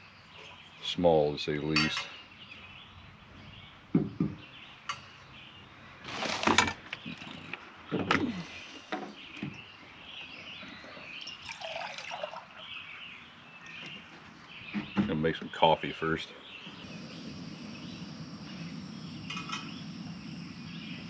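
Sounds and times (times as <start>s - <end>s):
birds chirping faintly: 0.0s - 21.0s
pot and utensils clinking: 1.8s - 2.1s
water pouring into metal pot: 11.2s - 12.7s.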